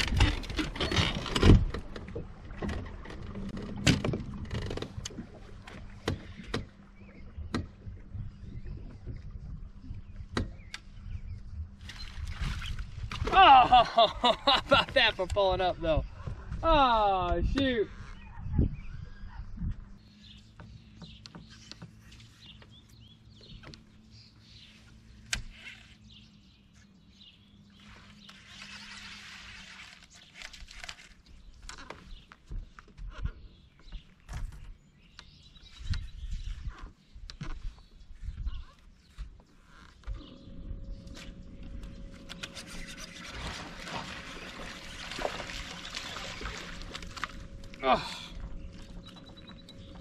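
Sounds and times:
water splashing and trickling: 0.0s - 10.2s, 11.7s - 15.8s, 41.0s - 50.0s
low steady hum: 34.3s - 50.0s
fish thrashing at surface: 42.5s - 49.0s
bird chirps: 47.4s - 50.0s.

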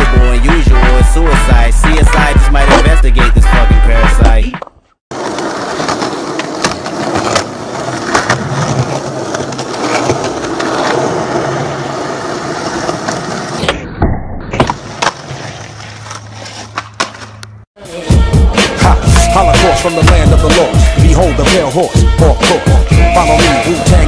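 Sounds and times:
skateboard clacking: 1.8s - 12.0s, 18.7s - 20.7s
skateboard wheels rolling on asphalt: 4.2s - 13.7s, 14.6s - 17.6s.

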